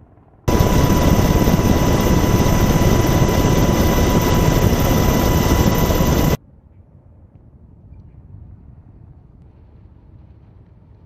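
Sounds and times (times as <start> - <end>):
helicopter rotor and turbine rumble: 0.5 - 6.4
high whine: 0.5 - 6.4.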